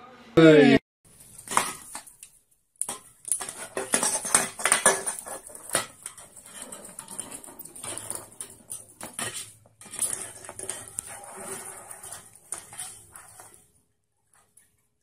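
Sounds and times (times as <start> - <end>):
drink can clattering on wooden floor: 2.9 - 13.5.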